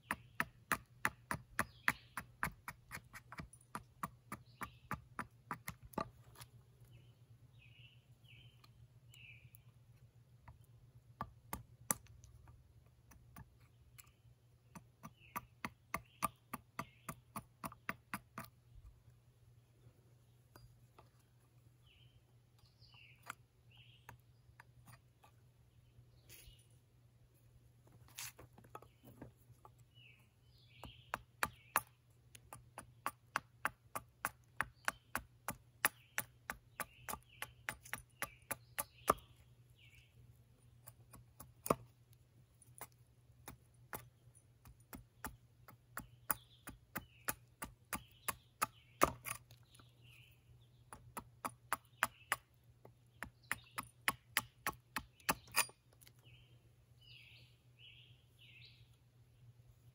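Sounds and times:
faint birds chirping: 0:00.0 - 0:59.9
tool chopping into wood: 0:44.7 - 0:49.4.

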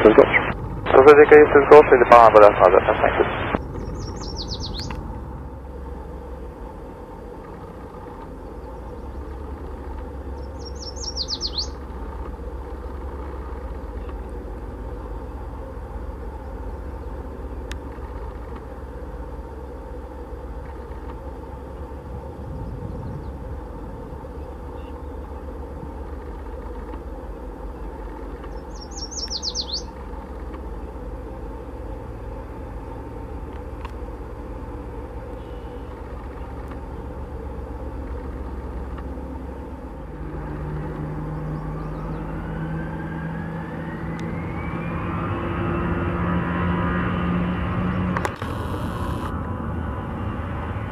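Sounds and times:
jet engines rumbling: 0:00.0 - 0:50.9
bird trilling: 0:03.6 - 0:05.0, 0:10.3 - 0:11.9, 0:27.8 - 0:30.0.

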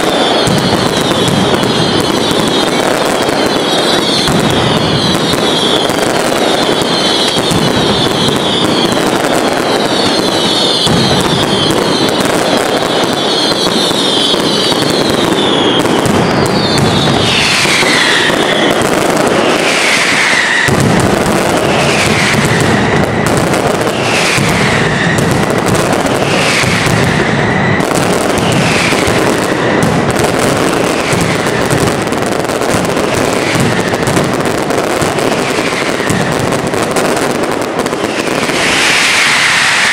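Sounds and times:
falling whistles: 0:00.0 - 0:29.9, 0:37.9 - 0:39.9
firecrackers crackling bangs: 0:00.0 - 0:39.9.

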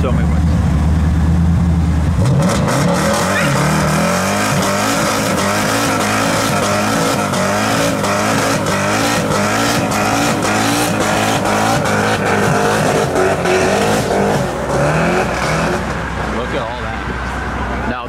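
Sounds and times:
car engine revving: 0:00.0 - 0:18.0
tyres squealing on pavement: 0:02.8 - 0:16.5.

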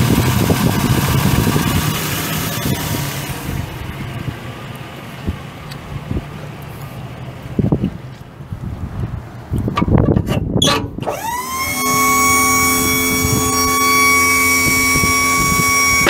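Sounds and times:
hydraulic pump whining: 0:00.0 - 0:04.3, 0:09.7 - 0:16.0.

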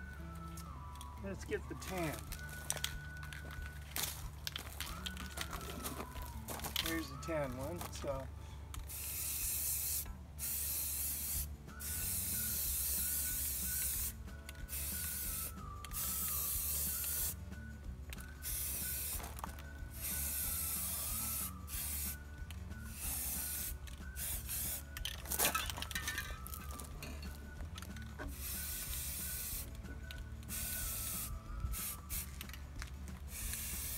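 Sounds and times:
spray paint can hissing: 0:08.8 - 0:17.4, 0:18.1 - 0:27.0, 0:27.8 - 0:33.9.

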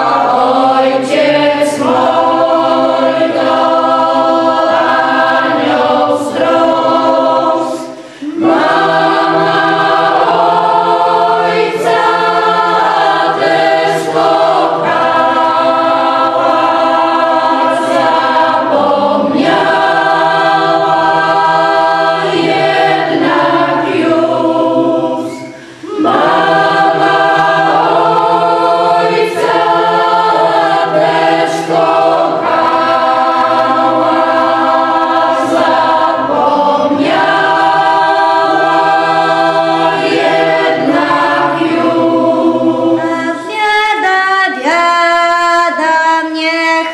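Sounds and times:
group singing unaccompanied: 0:00.0 - 0:46.9.

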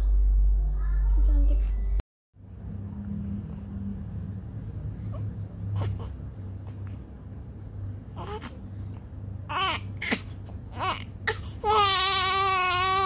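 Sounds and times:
baby crying: 0:08.2 - 0:08.6, 0:09.5 - 0:13.0.

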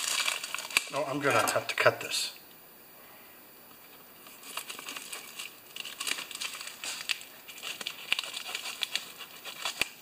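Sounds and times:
paper mailer crinkling: 0:00.0 - 0:01.6, 0:04.2 - 0:10.0
scissors cutting paper: 0:04.4 - 0:10.0.

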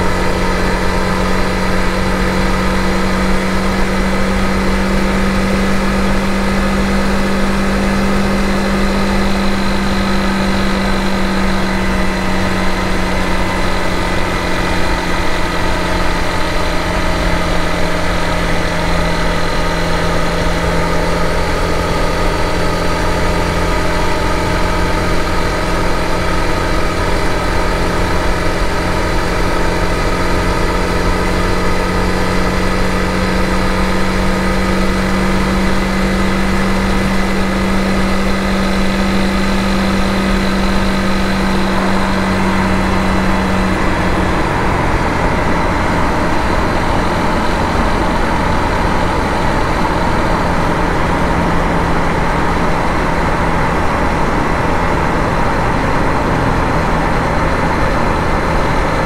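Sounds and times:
motorcycle engine cruising: 0:00.0 - 0:59.0.

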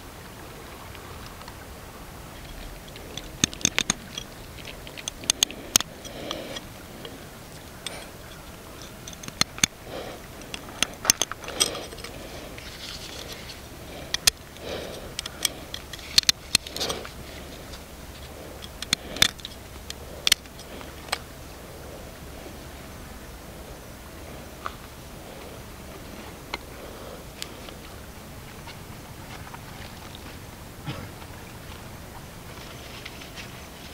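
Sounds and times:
short rustling: 0:02.2 - 0:21.4
sharp clicks and clatter: 0:02.4 - 0:09.8, 0:10.4 - 0:21.2.

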